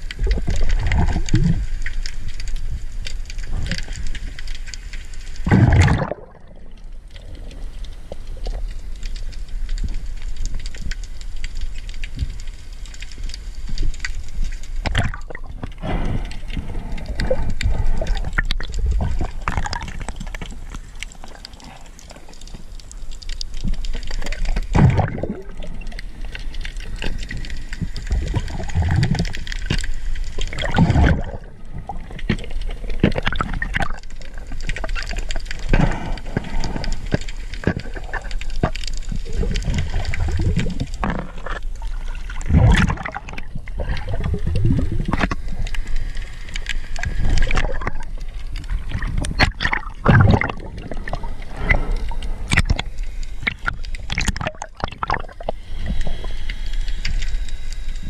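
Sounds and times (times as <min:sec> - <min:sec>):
water gurgling underwater: 0:00.0 - 0:09.1, 0:13.8 - 0:57.3
crackle of small clicks: 0:00.0 - 0:58.0
whooshing water surges: 0:24.1 - 0:58.0.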